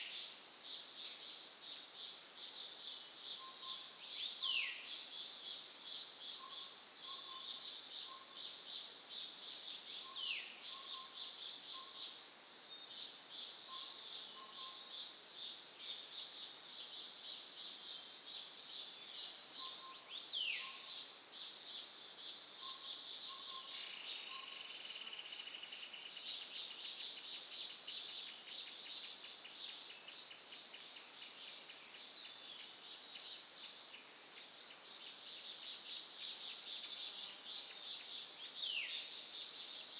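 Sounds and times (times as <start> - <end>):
insects buzzing: 0.0 - 39.9
loud insect trill: 23.0 - 27.2.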